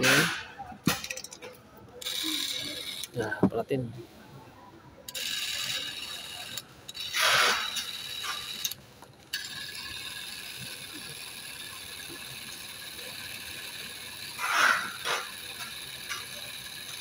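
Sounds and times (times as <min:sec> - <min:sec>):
film camera motor whirring: 0:02.0 - 0:03.2, 0:05.1 - 0:17.0.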